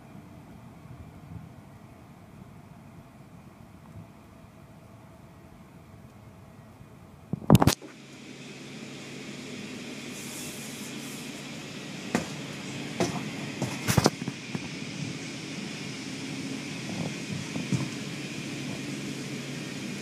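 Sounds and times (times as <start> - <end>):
low machine hum: 0.0 - 20.0
water spray rushing: 10.1 - 14.4.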